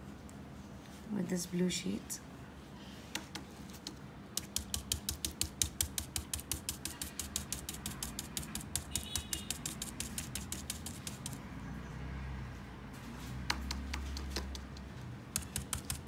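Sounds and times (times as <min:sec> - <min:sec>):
stencil brush tapping: 0:03.2 - 0:11.4, 0:13.4 - 0:16.0.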